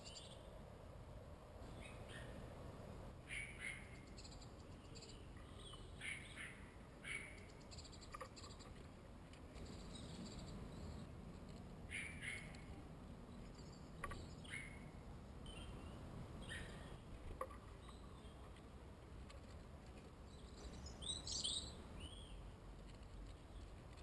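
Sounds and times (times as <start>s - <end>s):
birds chirping: 1.6s - 2.5s, 3.2s - 8.8s, 9.5s - 11.1s, 11.8s - 18.6s, 20.2s - 22.5s.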